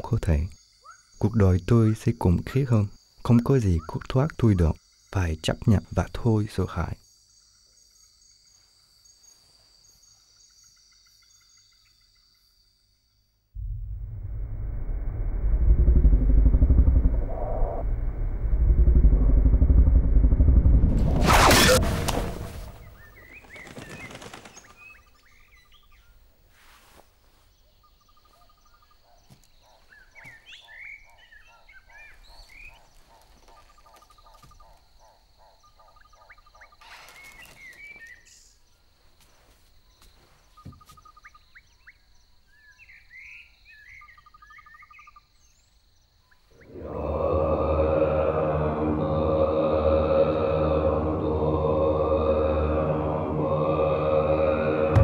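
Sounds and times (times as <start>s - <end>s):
birds chirping and trilling: 20.9s - 26.3s, 27.3s - 47.9s.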